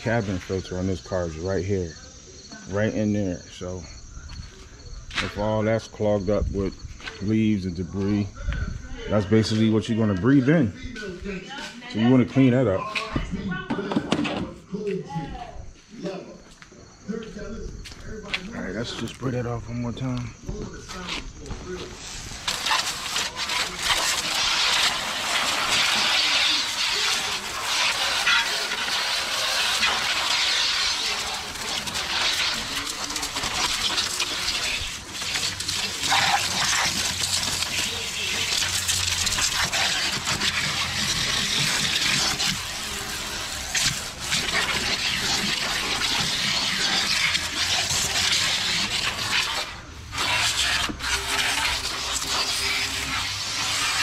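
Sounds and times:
water jet spraying with splashing: 21.7 - 54.0.

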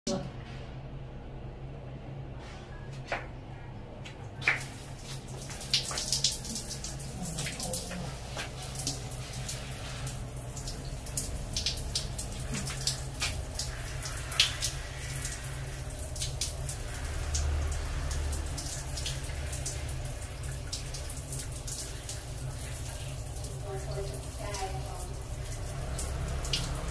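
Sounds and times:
shower water splashing: 4.4 - 26.9.

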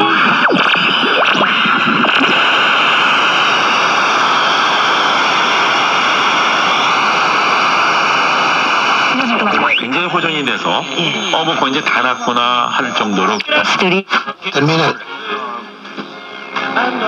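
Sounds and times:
radio gliding whistles: 0.0 - 13.6
radio static hiss: 0.0 - 15.2.

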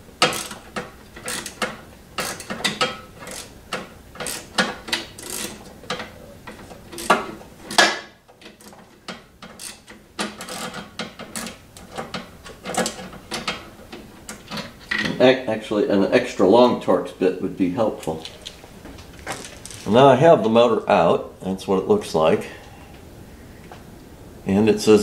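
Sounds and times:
socket ratchet clicking: 0.2 - 6.0, 6.9 - 7.9.

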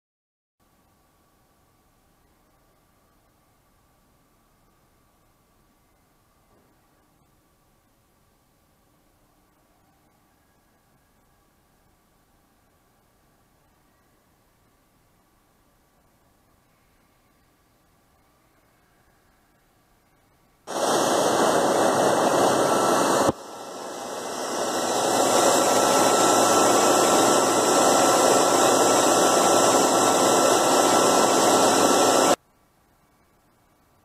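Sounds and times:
machine spindle hissing noise: 20.7 - 32.4.

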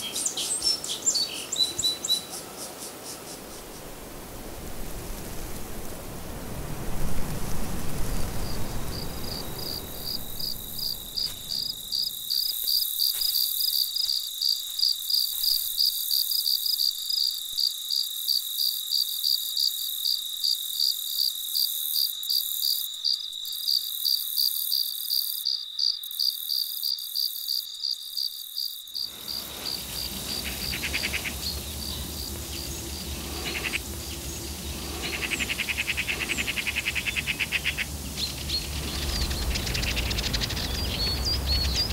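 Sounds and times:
insect chirping: 7.5 - 41.9
low outdoor rumble: 29.1 - 41.9.

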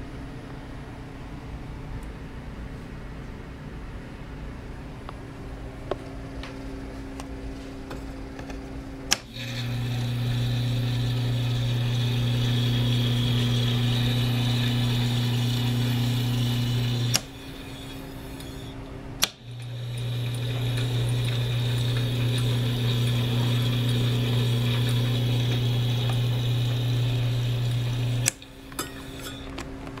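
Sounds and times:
recorder motor hum and whir: 4.9 - 30.0
switch click: 9.1 - 9.3, 19.2 - 19.4.

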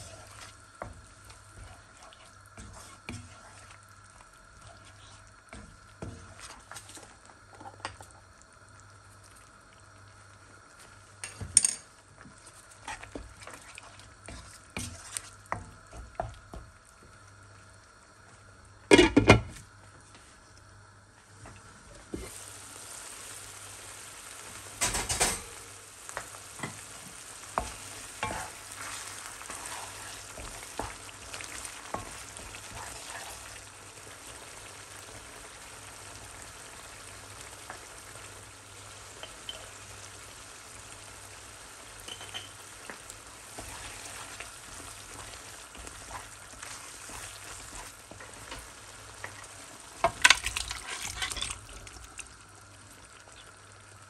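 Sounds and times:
spoon scraping in a pan: 0.0 - 3.8, 11.2 - 15.7, 26.1 - 33.6, 42.0 - 51.7
food sizzling in fat: 0.0 - 54.0.

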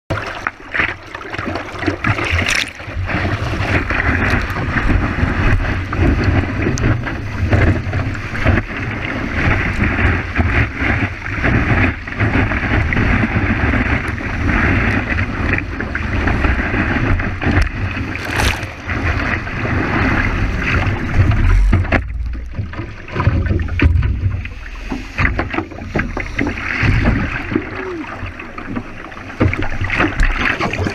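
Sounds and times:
water rushing and splashing: 0.1 - 30.9
lapping water: 0.2 - 4.8, 18.0 - 19.4, 27.2 - 28.6
wind buffeting on microphone: 2.0 - 28.9.

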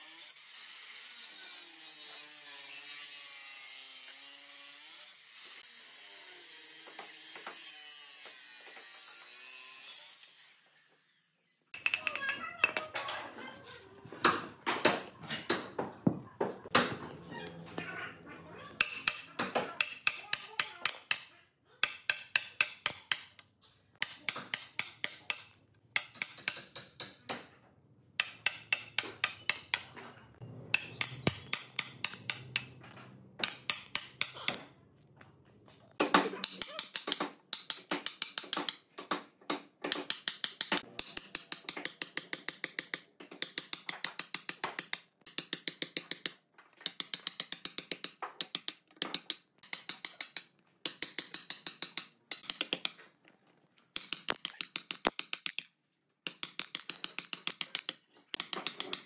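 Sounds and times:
hammer striking chisel into wood: 18.8 - 23.4, 24.0 - 27.5, 28.2 - 29.9, 30.7 - 32.8, 33.4 - 34.7, 36.0 - 53.0, 56.3 - 59.0.

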